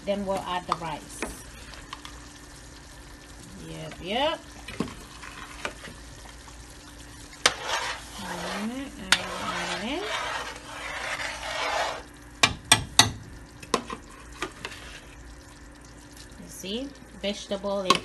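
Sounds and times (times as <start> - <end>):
spoon stirring sauce in pot: 4.7 - 6.6, 7.2 - 15.3.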